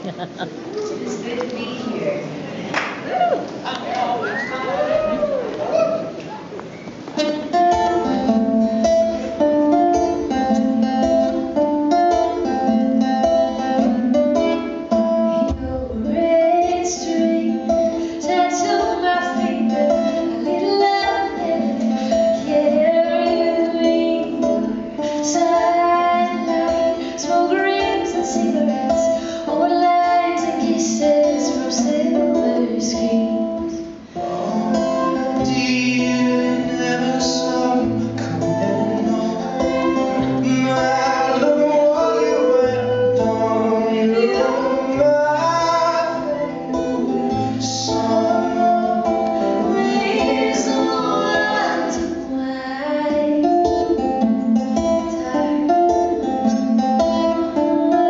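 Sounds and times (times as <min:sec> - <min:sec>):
acoustic guitar strummed: 0:07.2 - 0:58.0
woman singing: 0:15.3 - 0:33.8, 0:43.7 - 0:56.6, 0:57.2 - 0:58.0.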